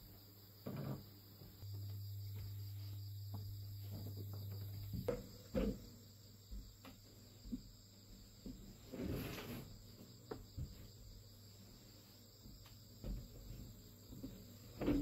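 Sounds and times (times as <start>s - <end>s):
crickets chirping: 0.0s - 15.0s
low steady hum: 1.6s - 6.5s.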